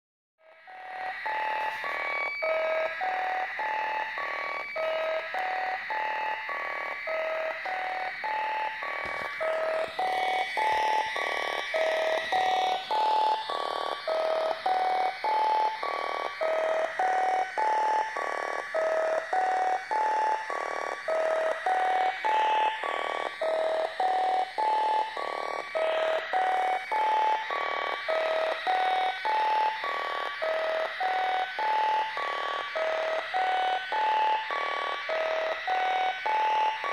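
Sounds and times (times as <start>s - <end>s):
electronic synth blips: 0.7s - 36.9s.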